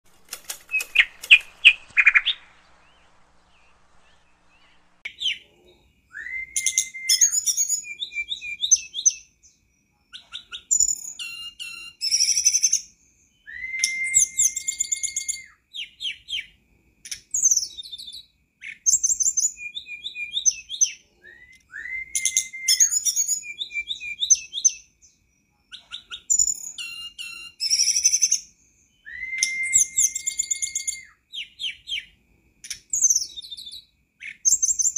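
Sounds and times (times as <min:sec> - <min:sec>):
flycatcher singing: 0:00.5 - 0:16.3, 0:17.4 - 0:32.1, 0:32.7 - 0:34.9
long even whistle: 0:06.1 - 0:09.0, 0:10.7 - 0:15.6, 0:19.3 - 0:24.6, 0:28.9 - 0:31.2.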